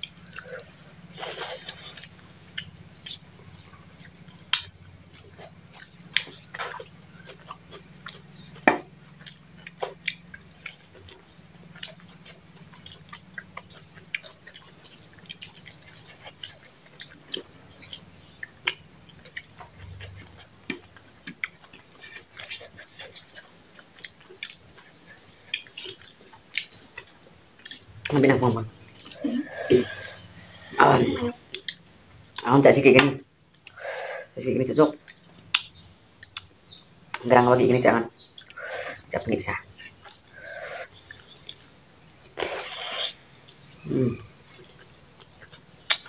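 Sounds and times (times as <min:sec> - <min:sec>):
people chewing with wet smacks: 0:00.0 - 0:33.8, 0:34.9 - 0:37.6, 0:38.2 - 0:46.0
faint low hum: 0:00.0 - 0:46.0.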